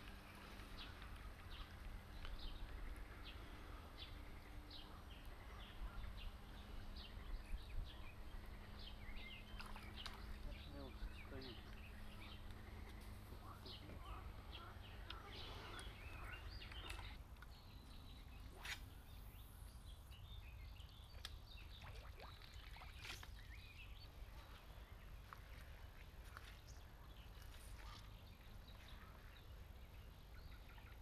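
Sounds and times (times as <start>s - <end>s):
steady low rumble: 0.0s - 21.0s
bird chirps: 1.5s - 24.1s.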